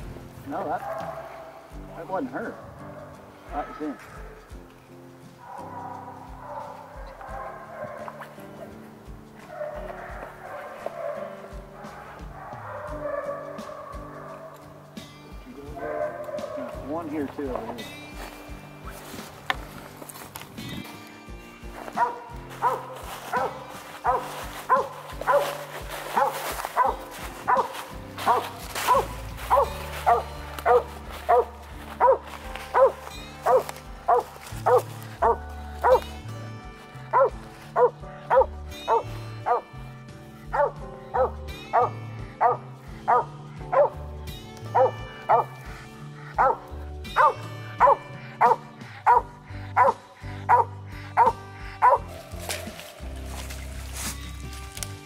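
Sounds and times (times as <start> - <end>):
background music: 0.0 - 55.0
dog barking: 0.5 - 1.7, 2.4 - 4.3, 5.4 - 8.4, 9.4 - 14.6, 15.7 - 17.1, 21.8 - 36.1, 37.1 - 39.7, 40.5 - 44.0, 44.7 - 45.6, 46.3 - 52.7.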